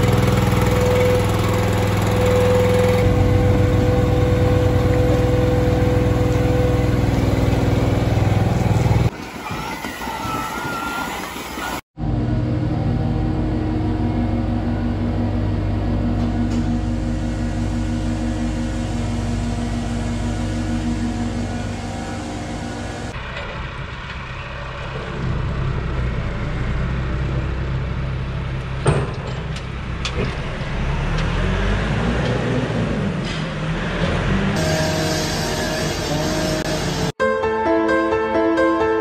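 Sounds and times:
machine hum and drone: 0.0s - 9.2s, 12.0s - 37.2s
tractor engine running: 0.0s - 9.2s, 12.3s - 33.1s
rising whine: 10.2s - 23.2s.

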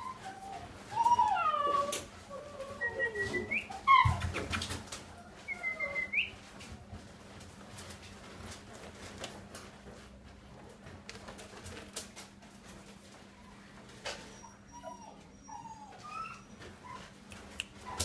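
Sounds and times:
puppy yelp: 0.0s - 6.4s, 14.2s - 17.2s, 17.8s - 18.0s
puppy whining and whimpering: 0.0s - 6.9s, 13.3s - 18.0s.

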